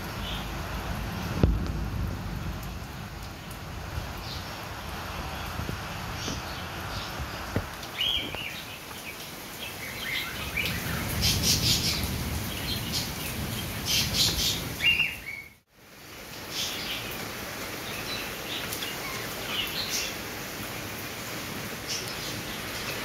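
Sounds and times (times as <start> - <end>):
rain hissing: 0.0 - 23.0
small birds chirping: 4.2 - 15.6.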